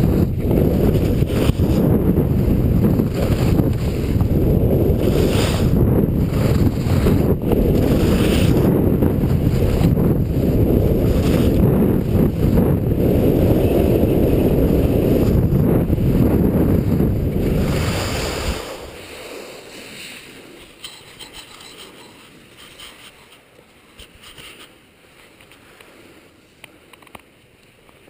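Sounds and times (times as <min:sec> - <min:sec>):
wind rushing over microphone: 0:00.0 - 0:23.3
faint clicks: 0:26.6 - 0:28.0.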